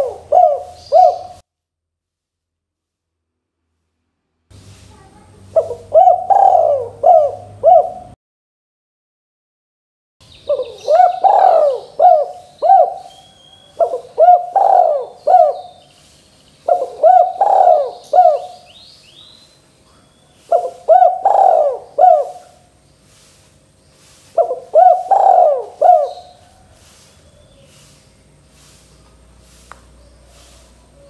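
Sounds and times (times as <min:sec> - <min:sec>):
dove cooing: 0:00.0 - 0:01.4, 0:05.5 - 0:08.2, 0:10.5 - 0:15.9, 0:16.6 - 0:18.8, 0:19.9 - 0:22.7, 0:24.3 - 0:27.9.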